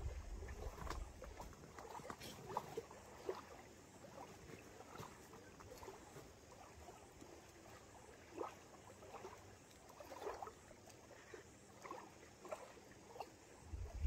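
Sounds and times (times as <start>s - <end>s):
wind rumble on microphone: 0.0s - 1.5s, 13.6s - 14.0s
faint trickles and clicks: 0.0s - 14.0s.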